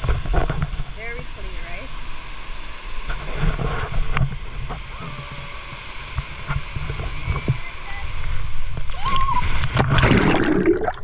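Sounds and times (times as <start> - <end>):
wind rumbling on microphone: 0.0 - 2.1, 2.9 - 10.4
waterfall rushing: 0.8 - 10.6
small water splashes: 8.8 - 11.0.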